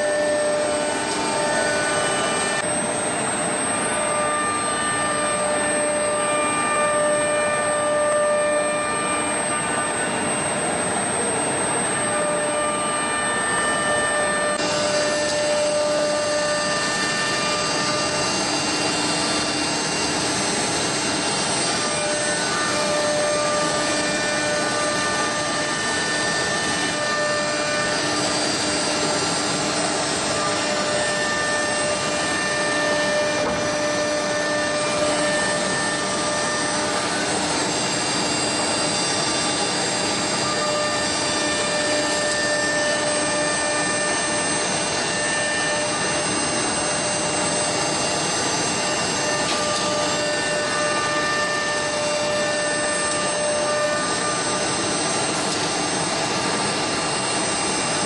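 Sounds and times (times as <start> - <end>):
router spindle high whine: 0.0 - 58.0.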